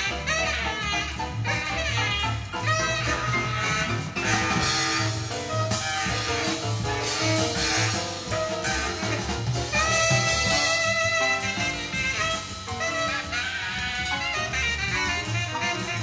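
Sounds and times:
drum kit: 0:00.0 - 0:16.0
walking bass line: 0:00.0 - 0:16.0
horn holding a long note: 0:02.6 - 0:05.3.

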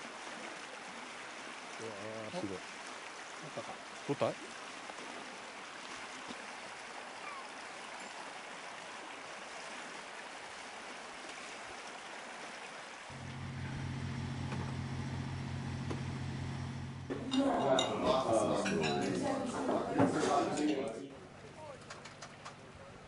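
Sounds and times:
low mechanical hum: 0:13.1 - 0:17.2.

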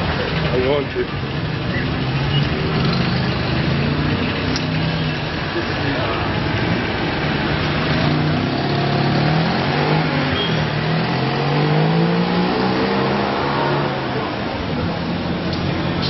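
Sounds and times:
car engine accelerating: 0:01.8 - 0:15.8.

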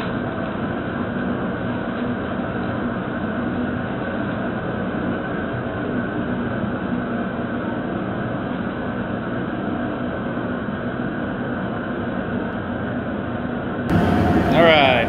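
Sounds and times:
gas burner rushing: 0:13.9 - 0:15.0.

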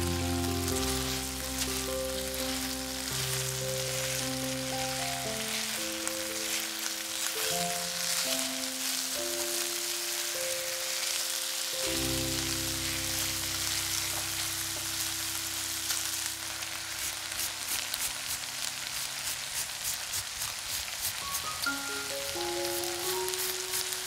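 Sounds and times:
background music: 0:00.0 - 0:15.7, 0:21.4 - 0:24.0
food sizzling in a pan: 0:00.0 - 0:24.0.

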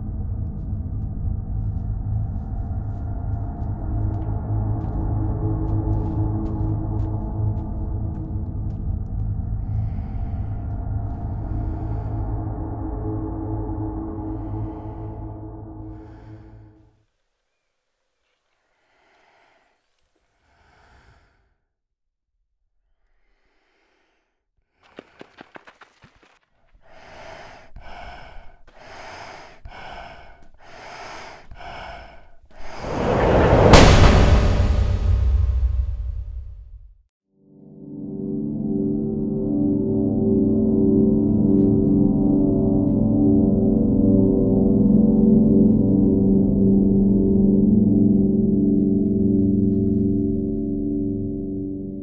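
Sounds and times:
dark gong-like drone: 0:00.0 - 0:16.6, 0:37.7 - 0:52.0
man breathing heavily: 0:05.8 - 0:17.0, 0:18.4 - 0:21.8, 0:23.1 - 0:33.2
rushing riser sound effect: 0:32.6 - 0:36.6
sharp loud hit: 0:32.8 - 0:36.9.

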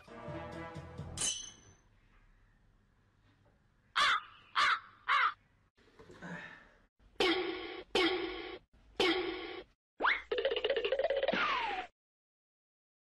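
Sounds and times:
harsh caw-like calls: 0:04.0 - 0:05.4.

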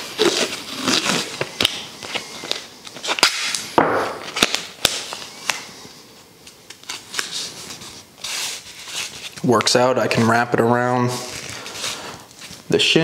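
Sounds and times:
tape ripping off roll: 0:00.0 - 0:05.6
tape snapping: 0:03.1 - 0:05.6.

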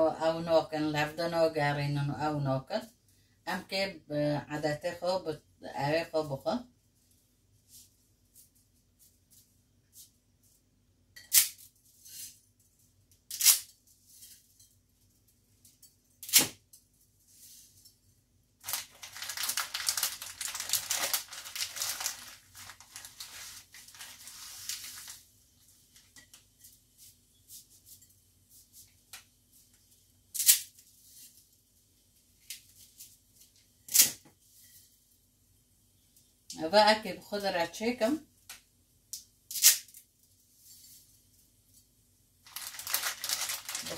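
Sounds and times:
plastic packaging crinkling: 0:18.6 - 0:26.1, 0:42.4 - 0:43.9.

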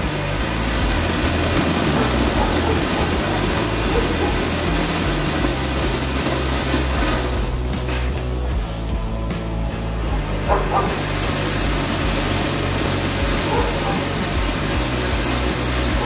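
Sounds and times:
firework fountain hissing: 0:00.0 - 0:16.0
music with stepping bass line: 0:00.0 - 0:16.0.

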